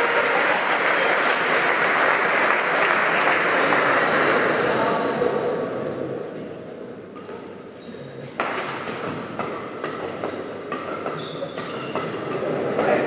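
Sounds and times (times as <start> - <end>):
low murmur in hall: 0.0 - 13.0
racket hitting shuttlecock: 8.4 - 13.0
shoe squeaks on court floor: 11.1 - 12.1.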